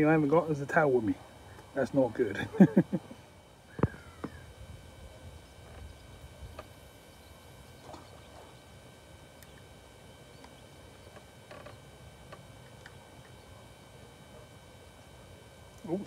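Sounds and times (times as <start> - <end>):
low rumble of wind: 3.6 - 8.6
fishing reel clicks and rustles: 5.6 - 14.2.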